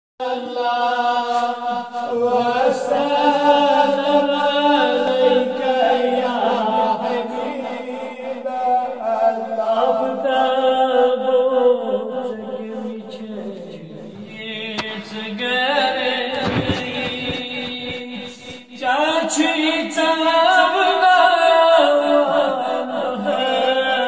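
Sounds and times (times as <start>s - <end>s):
person chanting melodically: 0.2s - 24.0s.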